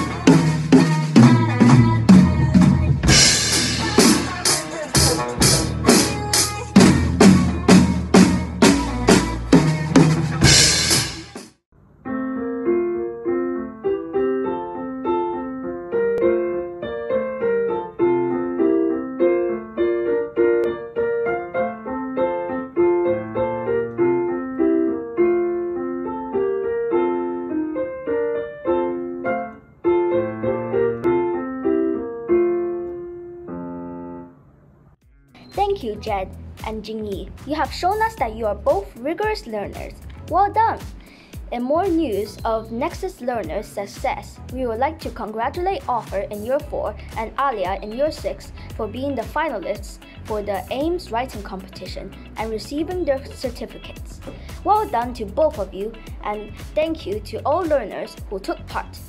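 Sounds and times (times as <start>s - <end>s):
drum kit with cymbals: 0.0s - 11.6s
solo piano piece: 12.0s - 34.6s.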